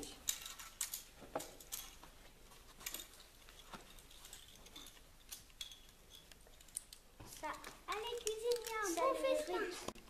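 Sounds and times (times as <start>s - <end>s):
small objects clicking on a table: 2.8s - 9.2s.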